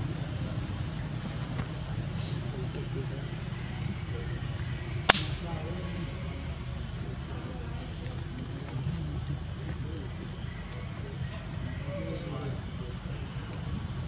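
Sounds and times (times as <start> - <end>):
high-pitched insect chorus: 0.0 - 14.0
low background rumble: 0.0 - 14.0.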